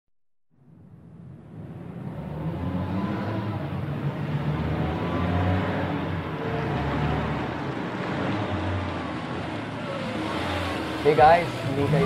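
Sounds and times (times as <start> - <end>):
car engine and road noise: 0.5 - 12.0.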